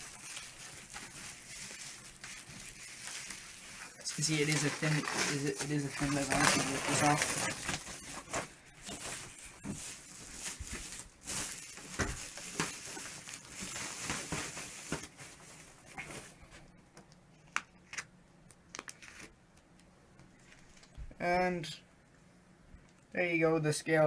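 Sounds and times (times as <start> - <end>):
plastic wrap peeling and crinkling: 0.0 - 16.3.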